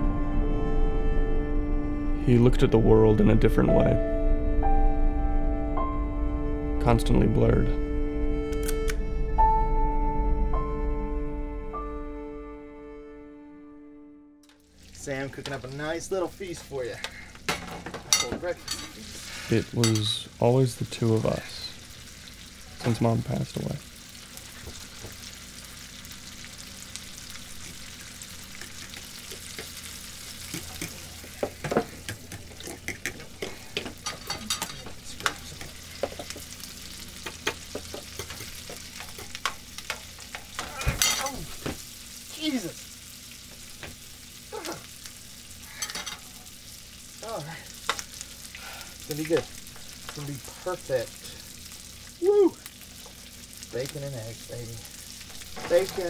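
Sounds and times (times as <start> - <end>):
food sizzling in a frying pan: 14.5 - 56.0.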